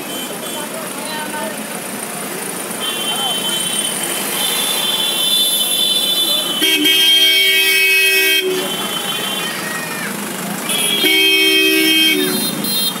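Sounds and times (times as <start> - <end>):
traffic noise: 0.0 - 13.0
vehicle horn blasts: 2.8 - 9.6, 10.7 - 13.0.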